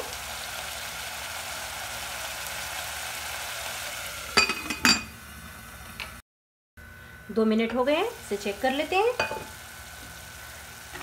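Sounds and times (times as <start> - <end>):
curry sizzling in pot: 0.0 - 5.2, 7.9 - 11.0.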